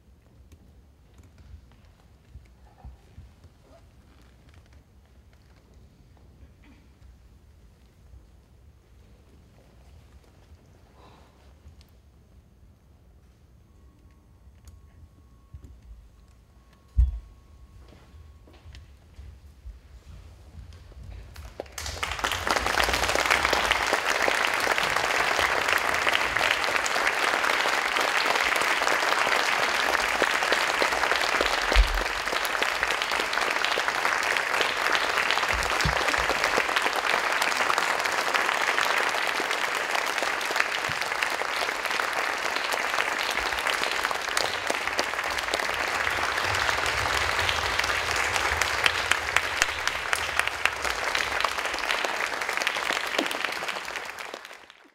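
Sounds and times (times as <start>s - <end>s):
audience applauding: 21.3s - 54.9s.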